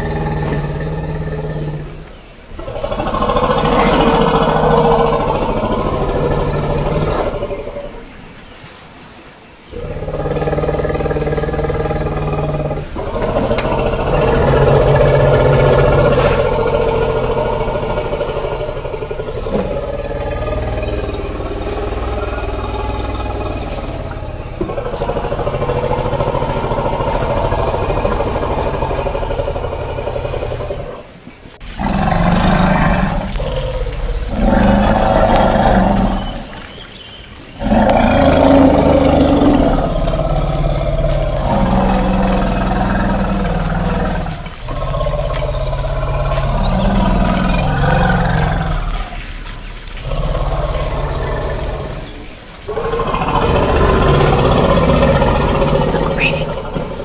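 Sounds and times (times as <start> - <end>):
elephant calls: 31.0 - 57.0.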